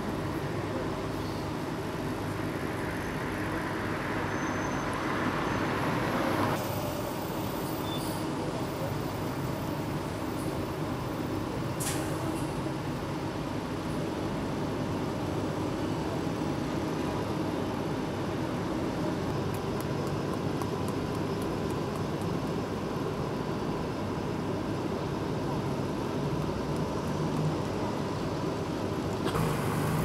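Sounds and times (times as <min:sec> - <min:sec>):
diesel engine idling: 0:25.3 - 0:30.0
loud hissing: 0:29.2 - 0:30.0.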